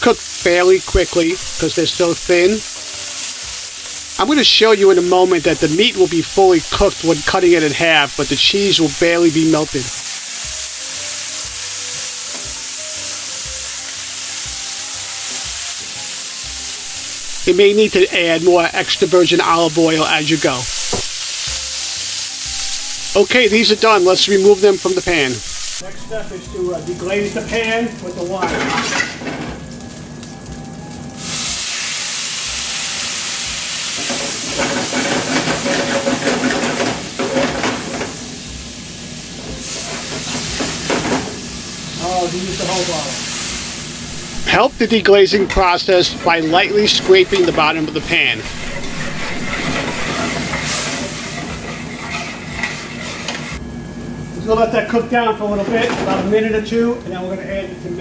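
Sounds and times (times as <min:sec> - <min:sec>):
meat sizzling in a pan: 0:00.0 - 0:55.6
utensil scraping pan bottom: 0:46.2 - 0:53.5.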